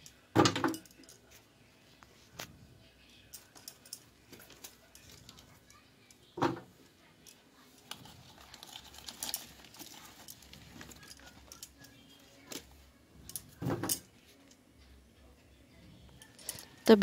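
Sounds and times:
vegetables clicking and rustling: 7.3s - 12.7s.

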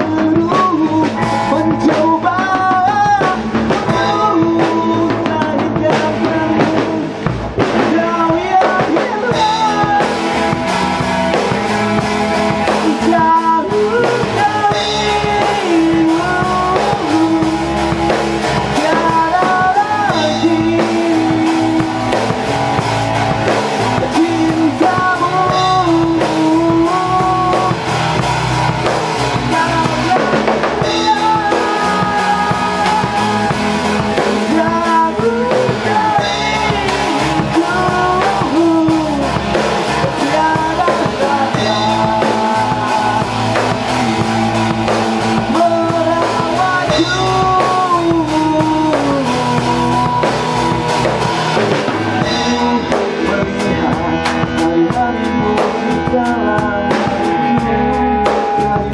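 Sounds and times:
bass guitar: 0.0s - 58.9s
drum kit: 0.0s - 58.9s
electric guitars: 0.0s - 58.9s.

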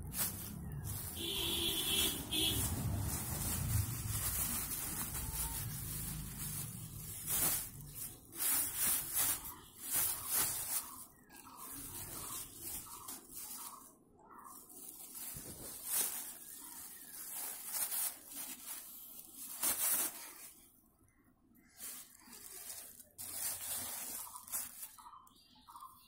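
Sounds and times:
plastic bag crinkling: 0.0s - 20.7s, 21.6s - 25.9s.

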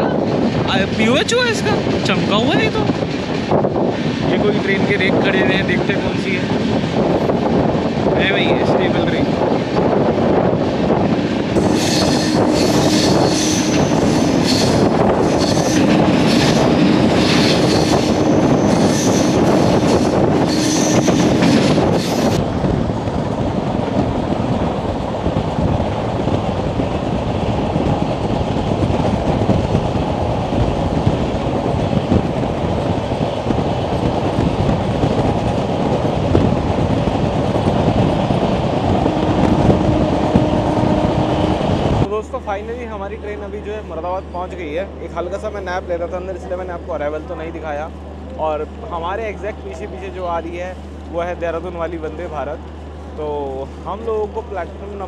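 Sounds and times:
wheel and wind rush: 0.0s - 55.0s
train wheels clattering: 11.5s - 22.4s.

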